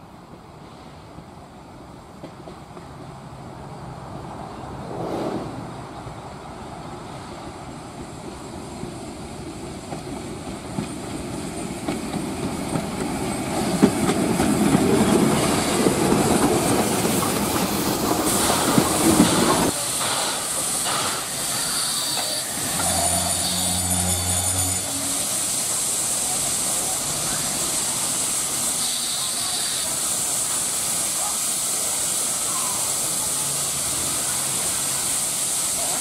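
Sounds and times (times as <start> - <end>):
steam locomotive running past: 0.0 - 36.0
steam hissing: 7.0 - 36.0.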